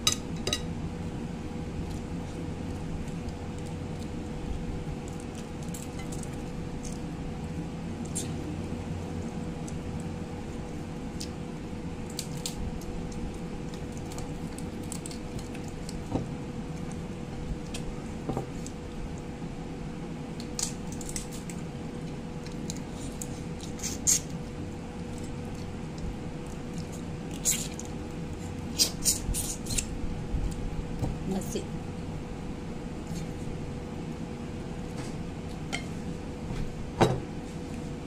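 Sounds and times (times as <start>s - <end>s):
faint steady hum: 0.0s - 38.0s
chewing food: 12.0s - 19.3s, 20.3s - 29.9s.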